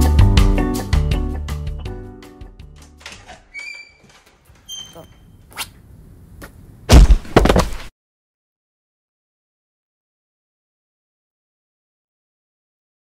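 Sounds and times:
background music: 0.0s - 3.2s.

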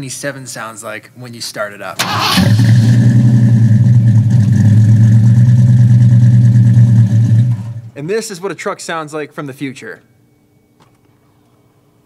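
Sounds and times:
truck engine cranking and running: 2.0s - 7.9s.

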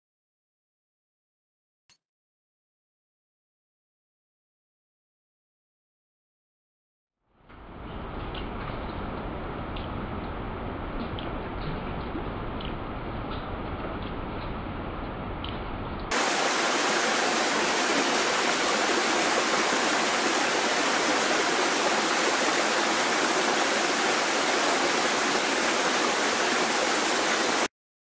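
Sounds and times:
loud steady rushing noise: 16.1s - 27.7s.

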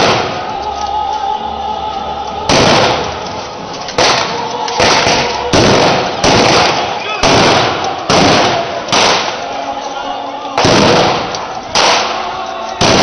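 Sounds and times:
rifle shots echoing: 2.5s - 3.2s, 4.0s - 9.4s, 10.6s - 13.0s.

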